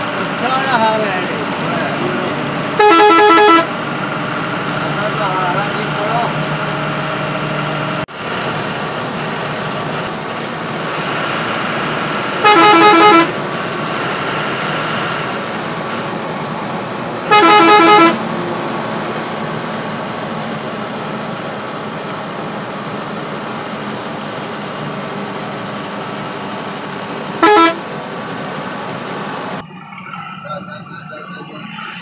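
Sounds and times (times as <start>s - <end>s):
bus engine and road noise: 0.0s - 32.0s
bus horn blasts: 2.8s - 3.8s, 12.4s - 13.4s, 17.2s - 18.3s, 27.4s - 27.9s.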